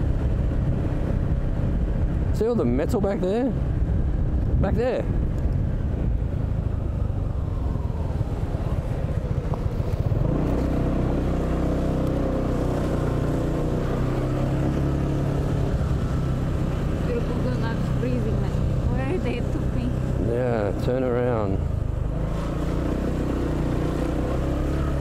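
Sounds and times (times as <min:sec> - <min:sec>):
road and wind noise: 0:00.0 - 0:25.0
scooter engine running: 0:08.0 - 0:20.8.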